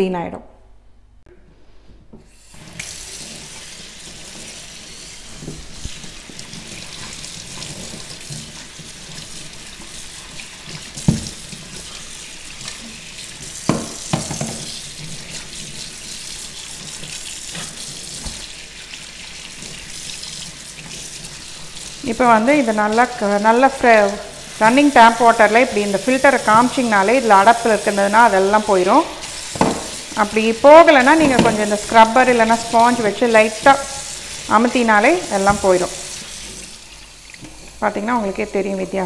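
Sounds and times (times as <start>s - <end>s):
water splashing from tap: 2.4s - 39.0s
sharp knocks: 29.5s - 29.9s.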